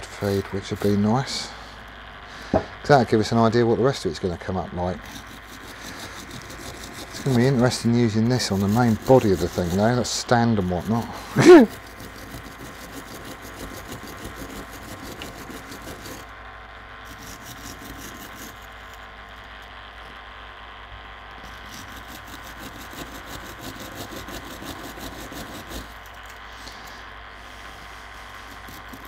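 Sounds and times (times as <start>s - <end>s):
steady low hum: 0.0s - 29.0s
wire brush scrubbing metal: 3.2s - 16.3s, 17.0s - 19.0s, 21.4s - 29.0s.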